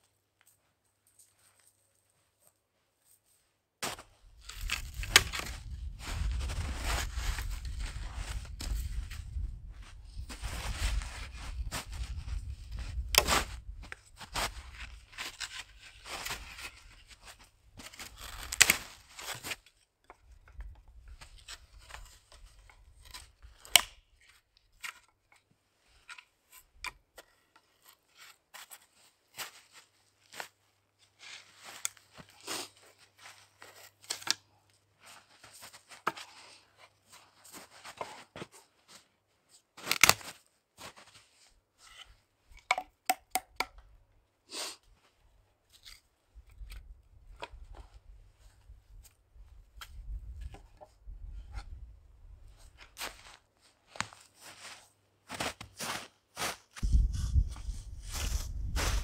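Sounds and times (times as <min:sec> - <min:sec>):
boots crunching in snow: 0:03.8 - 0:13.6, 0:54.0 - 0:59.0
dry branches cracking: 0:04.4 - 0:06.5.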